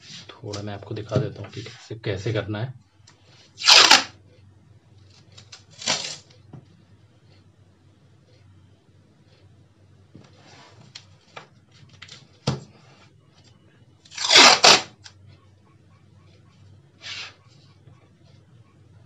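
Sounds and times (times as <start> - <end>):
masking tape ripping: 3.6 - 4.1, 5.7 - 6.3, 14.1 - 15.0
paper and tape rustling: 5.1 - 6.3, 14.1 - 14.9.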